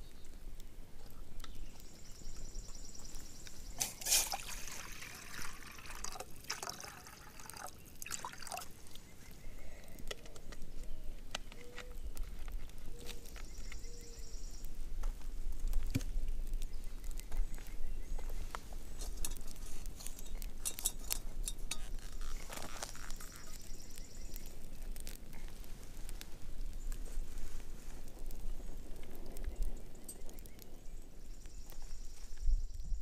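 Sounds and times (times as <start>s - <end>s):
campfire crackling and popping: 0.0s - 33.0s
metal pot clinking: 20.2s - 21.9s
wind rumble on microphone: 25.6s - 33.0s.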